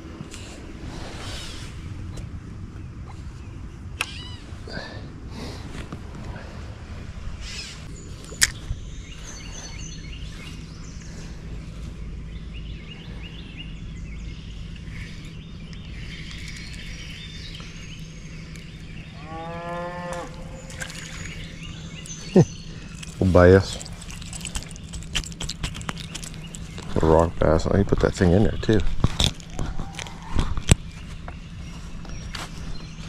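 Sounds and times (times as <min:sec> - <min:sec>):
low outdoor hum: 0:00.0 - 0:33.0
bird chirps: 0:07.4 - 0:33.0.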